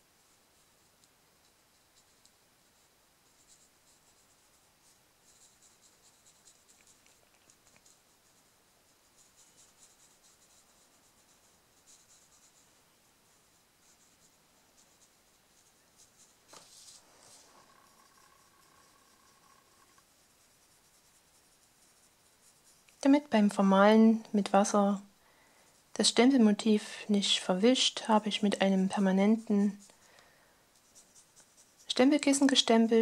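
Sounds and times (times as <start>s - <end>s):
brush bristles scratching paper: 0.2s - 23.4s, 24.5s - 30.1s, 30.7s - 33.0s
scuff on paper: 16.4s - 17.6s.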